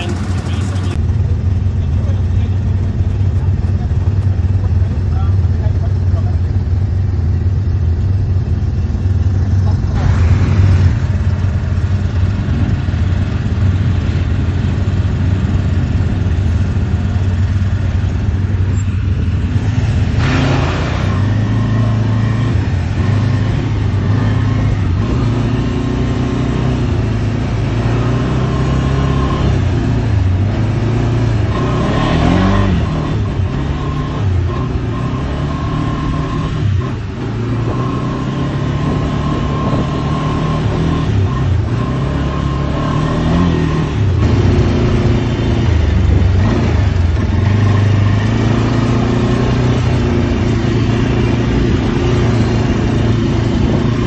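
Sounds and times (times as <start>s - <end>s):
quad engine running: 0.0s - 54.0s.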